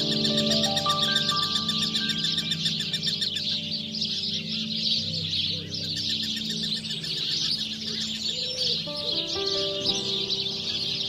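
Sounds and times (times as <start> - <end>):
birds chirping chorus: 0.0 - 11.0
quiet music with low notes: 0.0 - 11.0
soft low bird call: 0.0 - 11.0.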